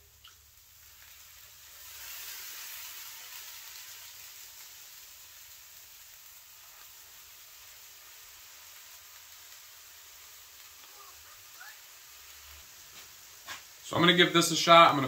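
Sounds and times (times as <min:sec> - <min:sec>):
hot wax sizzling hiss: 0:00.0 - 0:15.0
liquid dripping into pan: 0:00.1 - 0:01.1.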